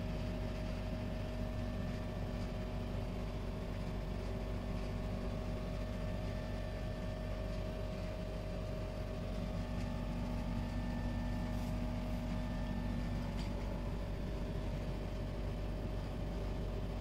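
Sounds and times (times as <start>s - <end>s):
mechanical hum: 0.0s - 17.0s.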